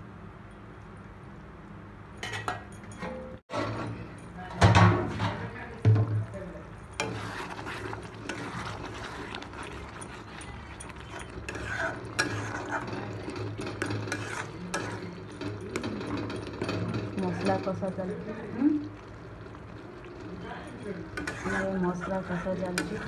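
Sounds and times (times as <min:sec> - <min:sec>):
thick sauce bubbling: 0:06.8 - 0:15.8, 0:18.2 - 0:23.0
metal spatula scraping pan: 0:07.0 - 0:17.9, 0:20.8 - 0:23.0.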